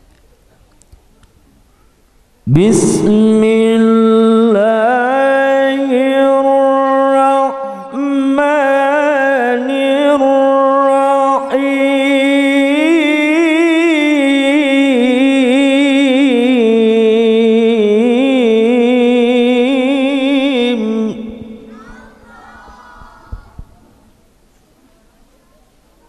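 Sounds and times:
man reciting melodically: 2.4s - 22.3s.

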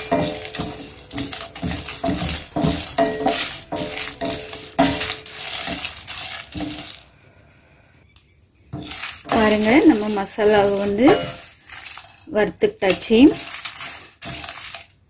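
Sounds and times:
pan ringing: 0.0s - 7.0s, 8.9s - 11.7s
spices rattling in metal pan: 0.0s - 7.1s, 8.7s - 15.0s.

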